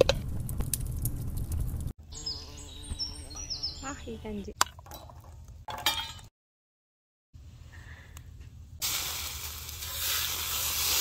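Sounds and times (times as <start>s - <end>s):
liquid sizzling in metal pan: 8.8s - 11.0s.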